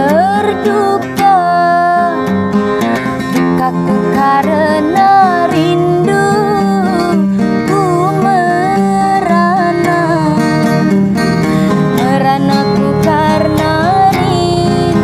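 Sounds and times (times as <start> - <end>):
strummed acoustic guitar: 0.0 - 15.0
woman singing: 0.0 - 15.0.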